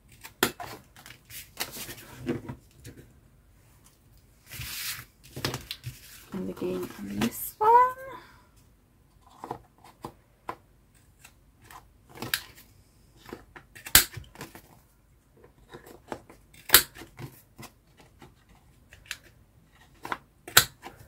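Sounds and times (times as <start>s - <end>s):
card rustling: 4.5s - 8.0s
corner punch snapping through card: 13.8s - 14.2s.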